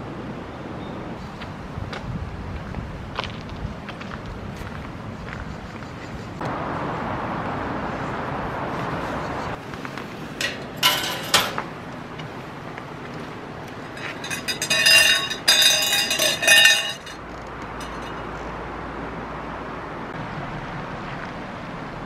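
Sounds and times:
ringing jingles: 10.4s - 11.6s, 13.8s - 18.3s
bright metallic clinking: 10.4s - 11.7s, 13.8s - 18.4s.

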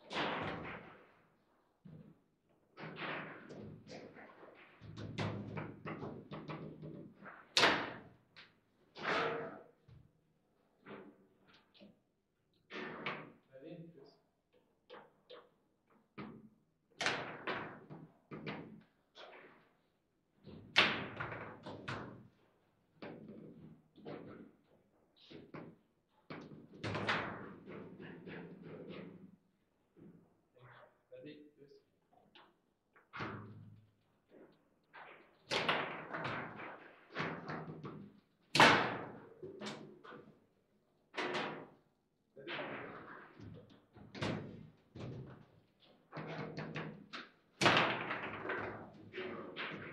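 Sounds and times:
foosball ball knocks and clacks: 2.8s - 9.6s, 17.0s - 19.6s, 20.4s - 22.3s, 25.3s - 29.2s, 34.9s - 40.3s, 41.2s - 41.8s, 42.5s - 45.5s, 46.2s - 49.9s.

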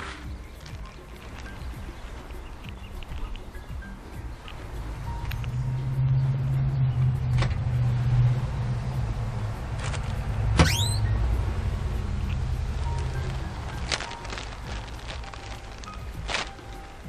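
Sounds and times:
steel doors swinging open: 10.6s - 11.1s.

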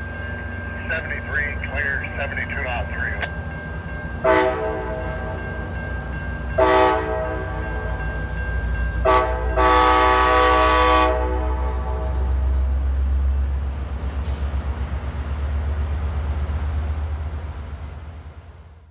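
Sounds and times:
low train rumble: 0.0s - 18.9s
locomotive air horn blasts: 4.2s - 5.0s, 6.6s - 7.5s, 9.0s - 12.3s.

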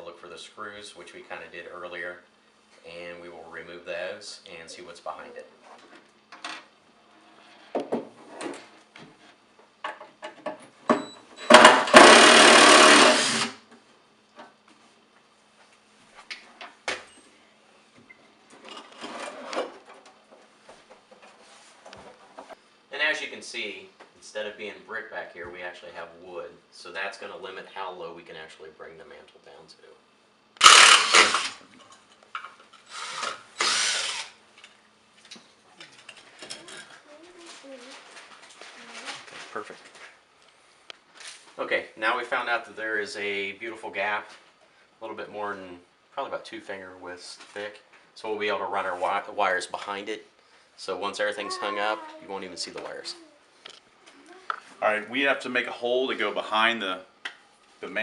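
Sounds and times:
cordless drill running: 11.5s - 13.6s, 30.6s - 31.6s, 32.9s - 34.4s.

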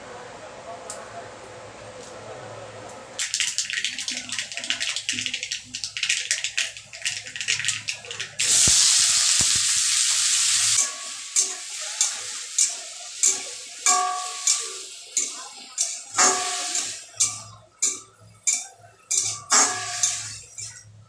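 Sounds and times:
spices crackling in hot oil: 3.2s - 21.0s
vegetables sizzling loudly: 3.2s - 21.0s
metal spatula scraping wok: 10.7s - 21.0s.

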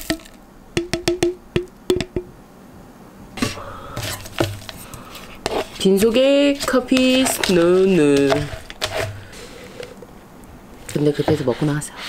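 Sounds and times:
plastic jar knocking on tub: 0.0s - 2.3s
spoon stirring thick yogurt: 4.0s - 10.0s.

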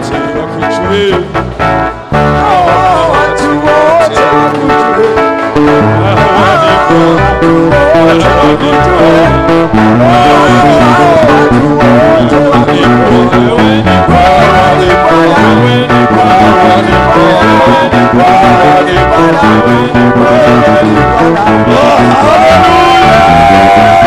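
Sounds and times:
person singing: 0.0s - 1.4s, 2.2s - 24.0s
bass line: 0.0s - 24.0s
plucked guitars: 0.0s - 24.0s.

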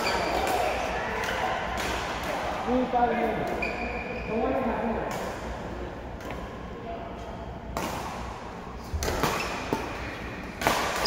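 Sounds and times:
rackets hitting shuttlecock: 0.0s - 2.6s, 7.7s - 11.0s.

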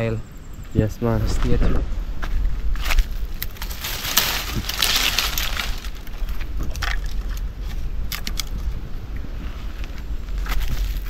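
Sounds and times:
leaves crunching underfoot: 2.2s - 8.0s
twigs snapping: 2.8s - 8.8s.

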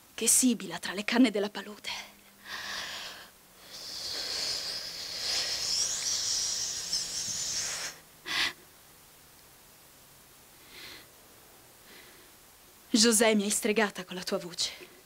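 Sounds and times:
sharp breath: 2.4s - 8.6s
woman hissing through lips: 2.6s - 8.6s.

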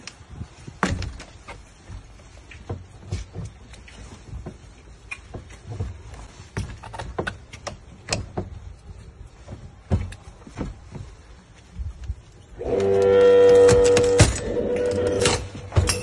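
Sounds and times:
wooden door cracking: 12.8s - 16.0s.

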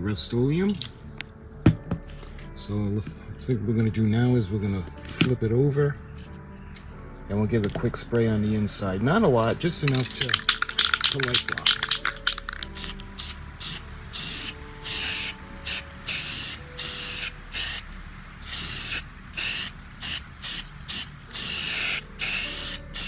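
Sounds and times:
spray paint can hissing: 9.8s - 23.0s.

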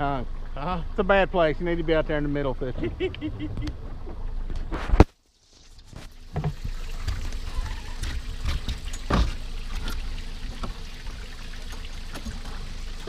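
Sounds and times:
water sloshing against boat hull: 5.6s - 13.0s
boat knocking against branches: 6.3s - 9.9s.

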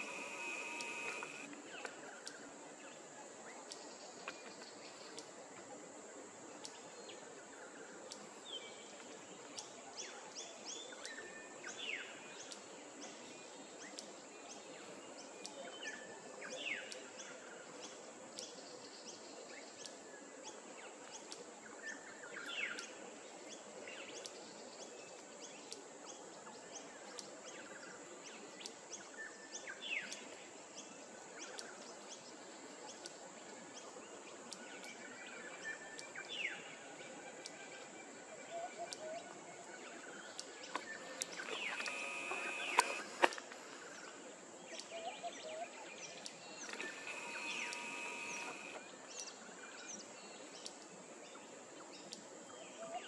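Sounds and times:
small birds chirping: 0.0s - 3.0s, 38.8s - 53.0s
steady background hiss: 0.0s - 53.0s.

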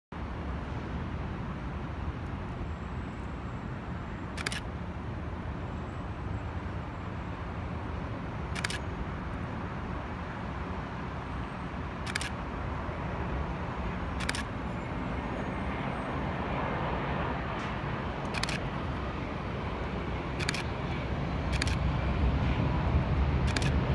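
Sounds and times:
road traffic rumble: 0.1s - 23.9s
distant airplane on approach: 0.2s - 23.9s
camera shutter clicks: 4.4s - 4.7s, 8.5s - 8.8s, 12.0s - 12.4s, 14.2s - 14.5s, 18.2s - 18.6s, 20.4s - 20.7s, 21.5s - 21.8s, 23.5s - 23.8s.

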